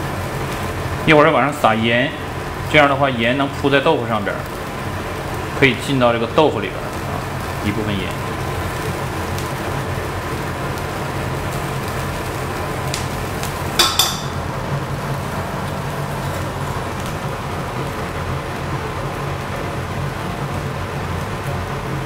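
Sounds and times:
broth simmering and bubbling: 0.0s - 22.0s
crockery clinking: 13.8s - 14.5s.

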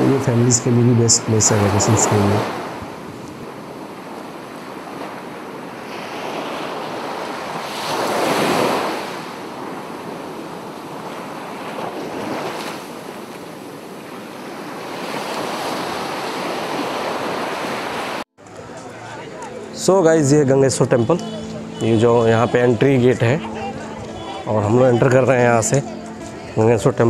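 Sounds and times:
sea waves breaking on rocks: 1.3s - 18.3s.

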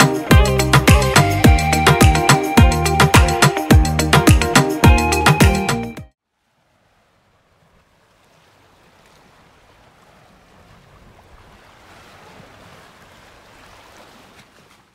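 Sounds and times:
wind: 0.0s - 14.9s
surf on rocky shore: 6.4s - 14.9s.

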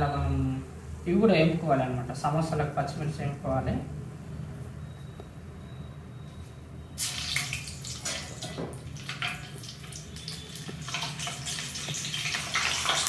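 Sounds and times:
chillies sizzling in hot oil: 7.0s - 13.0s.

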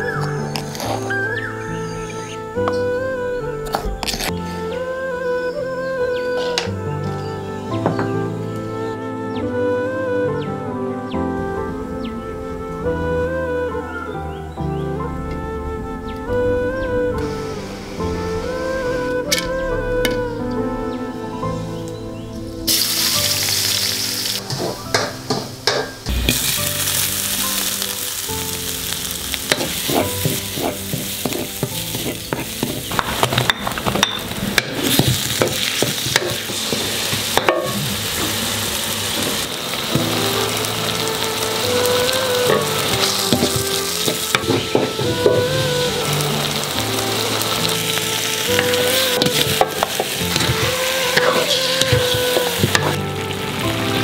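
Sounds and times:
onions sizzling in hot oil: 0.0s - 2.8s, 22.7s - 54.0s.

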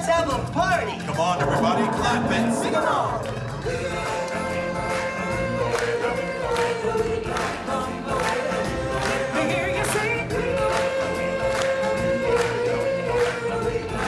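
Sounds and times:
percussion: 0.0s - 14.0s
choir singing long held notes: 1.2s - 9.2s.

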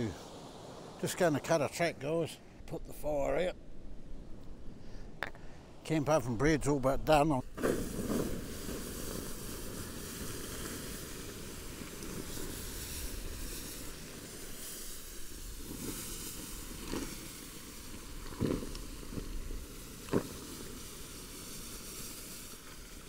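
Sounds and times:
water hissing on hot coals: 0.0s - 2.4s, 7.1s - 23.0s.

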